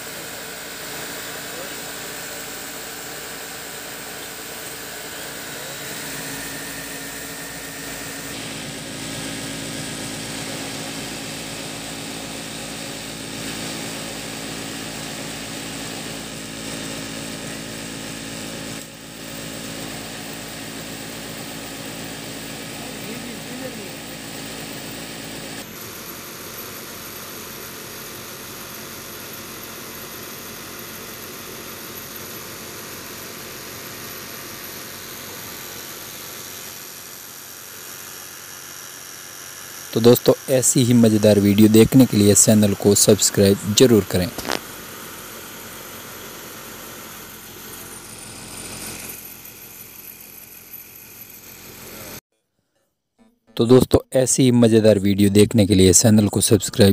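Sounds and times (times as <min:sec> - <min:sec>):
sewing machine running: 0:00.0 - 0:26.6.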